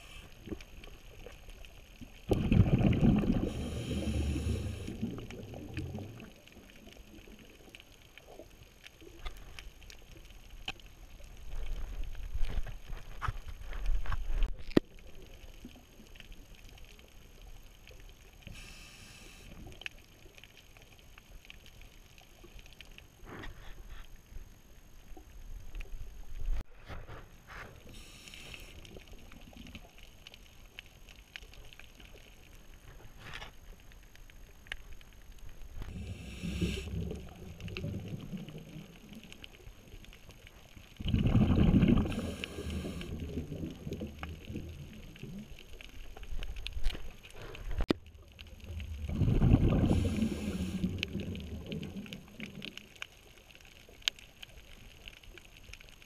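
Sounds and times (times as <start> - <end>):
exhaled bubbles rumbling: 0.0 - 8.4, 35.6 - 40.0, 40.6 - 46.8, 47.7 - 53.0
diver regulator hissing: 3.4 - 5.0, 18.5 - 19.5, 28.0 - 28.8, 35.9 - 37.0, 42.1 - 43.1, 49.8 - 50.9.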